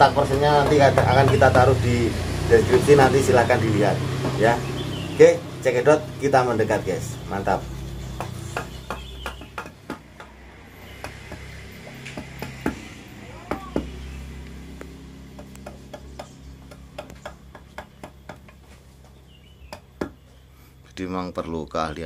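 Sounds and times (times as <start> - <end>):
mallet tapping wood chisel: 0.0 - 1.9, 4.2 - 4.5, 8.2 - 10.4, 11.0 - 12.8, 13.4 - 14.0, 15.3 - 18.7, 19.7 - 20.3.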